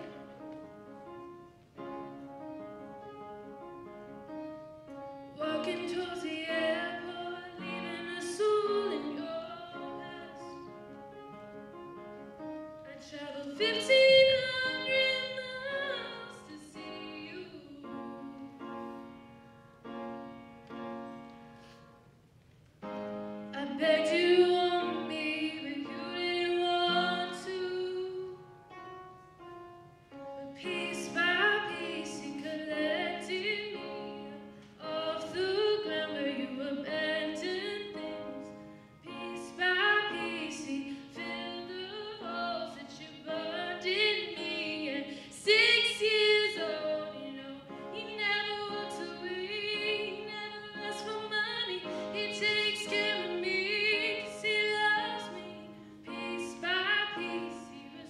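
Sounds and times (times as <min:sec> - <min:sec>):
upright piano: 0:00.0 - 0:58.0
woman singing slow song: 0:30.6 - 0:38.2, 0:39.1 - 0:58.0.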